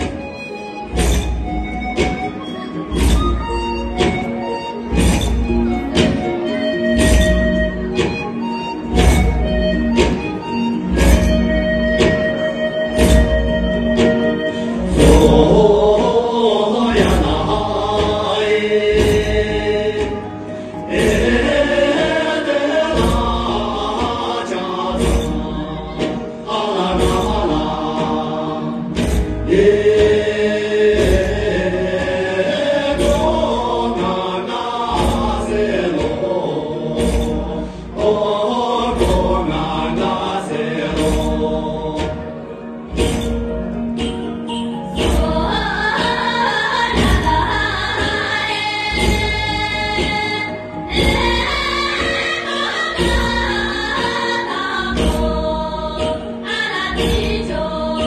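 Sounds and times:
group chant-like singing: 14.8s - 43.3s, 44.9s - 58.0s.

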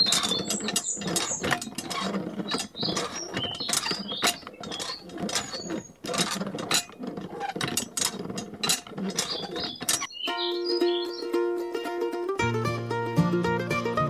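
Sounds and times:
hand pump clicking and creaking: 0.0s - 11.2s.

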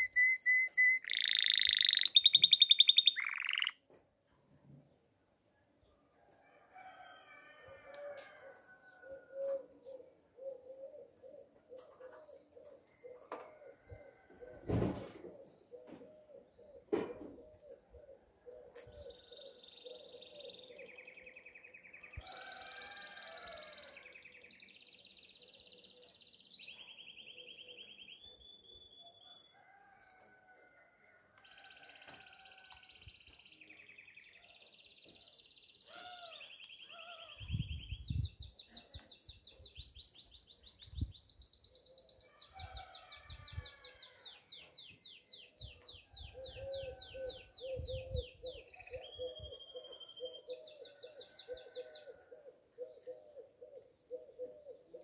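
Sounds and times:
canary singing trills: 0.0s - 3.8s.

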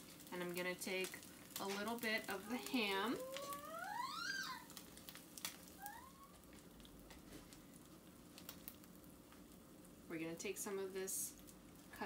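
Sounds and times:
pancakes frying crackles: 0.0s - 12.0s
cat meowing: 3.2s - 4.7s.

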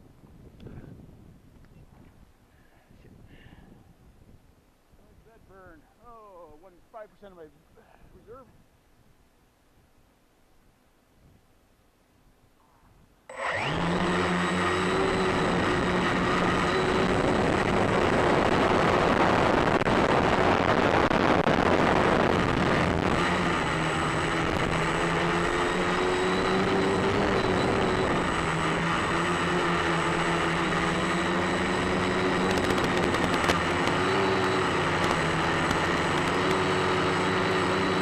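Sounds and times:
drone motors and propellers whining: 13.3s - 38.0s.

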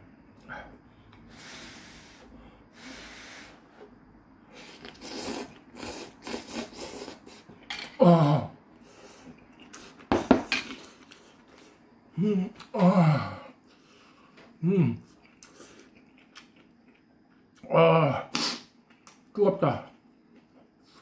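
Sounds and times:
hissing breaths: 0.5s - 7.4s
slurping and chewing noodles: 4.6s - 7.4s.

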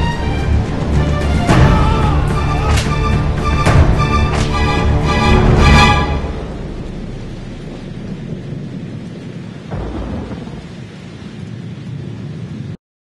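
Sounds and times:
heavy rain: 0.0s - 12.8s
low roll of thunder: 6.0s - 12.8s.

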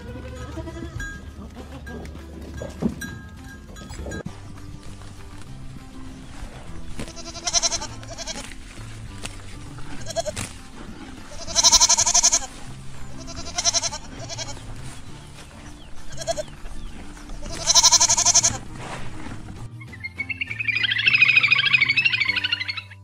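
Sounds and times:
kid goats bleating: 0.0s - 2.7s, 6.8s - 18.8s
background music: 0.0s - 23.0s.

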